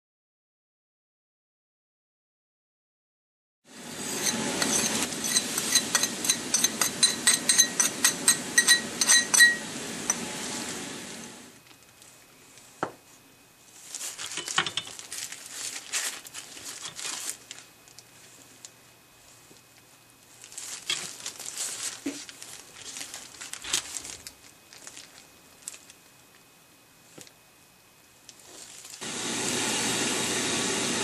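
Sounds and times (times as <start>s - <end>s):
metal spoon clinking in pot: 4.2s - 10.2s.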